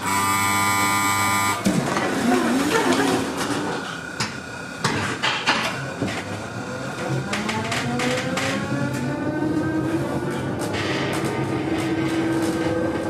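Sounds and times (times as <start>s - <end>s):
tram door warning buzzer: 0.0s - 4.8s.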